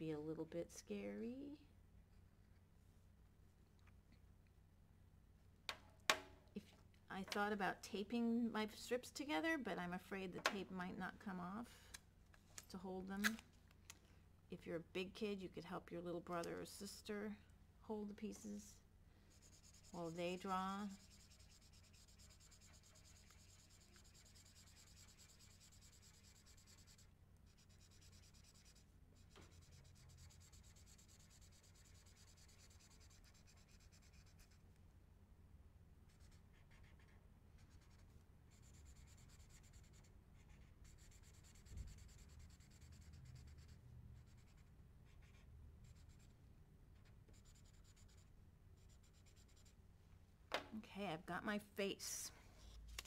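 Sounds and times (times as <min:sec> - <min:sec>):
marker scratching on paper: 0:19.3 - 0:34.6, 0:36.1 - 0:46.3, 0:47.0 - 0:49.7.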